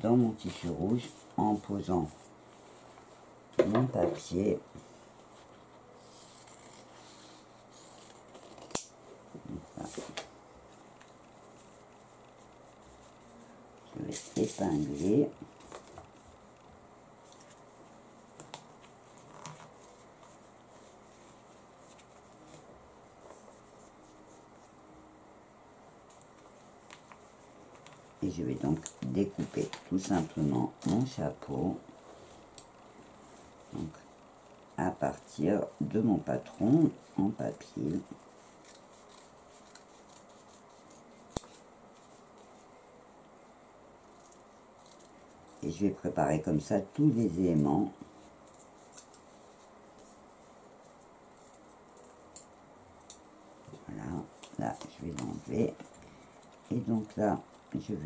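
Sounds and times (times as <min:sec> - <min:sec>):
paper and fabric rustling: 0:17.2 - 0:24.8, 0:35.6 - 0:45.9, 0:47.0 - 0:58.0.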